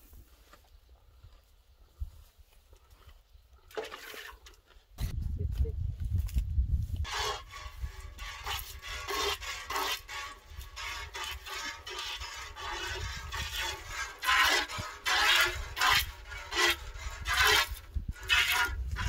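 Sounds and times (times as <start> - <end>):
milk squirting into metal bucket: 3.7 - 4.6.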